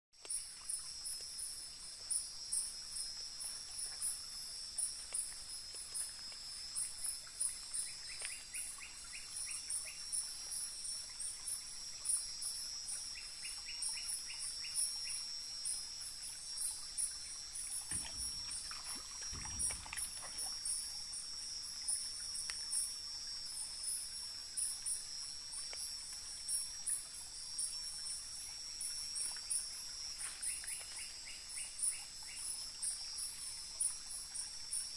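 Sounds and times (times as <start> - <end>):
high-pitched insect chirping: 0.2 - 25.2
insects buzzing: 0.2 - 34.9.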